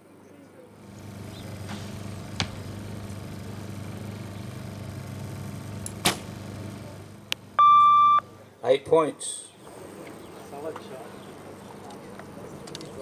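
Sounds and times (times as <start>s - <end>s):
steady low hum: 0.6s - 8.6s
bow string snap: 5.8s - 6.3s.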